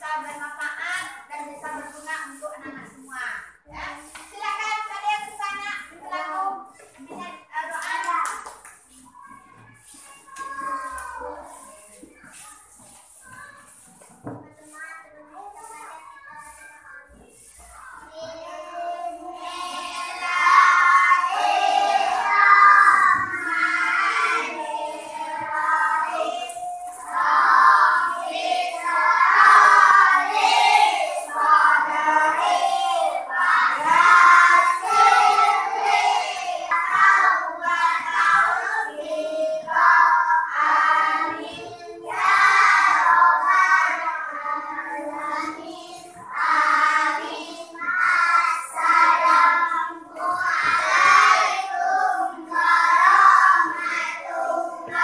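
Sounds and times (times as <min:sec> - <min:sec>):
child singing: 0:09.2 - 0:12.5, 0:13.1 - 0:55.0.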